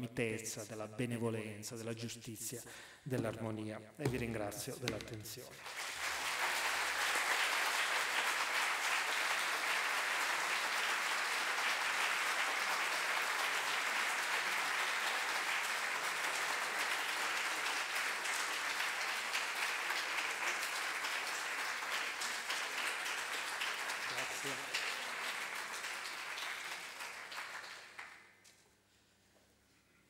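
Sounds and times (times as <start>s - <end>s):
audience applause: 5.6s - 28.3s.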